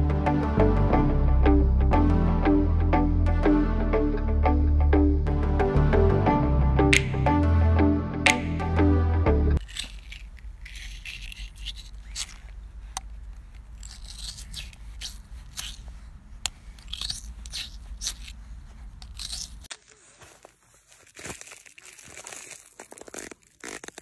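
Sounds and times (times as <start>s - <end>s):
metal scoop scraping vegetable: 9.6s - 12.6s, 13.7s - 16.0s, 16.7s - 19.7s
chestnut burr crackling underfoot: 16.8s - 24.0s.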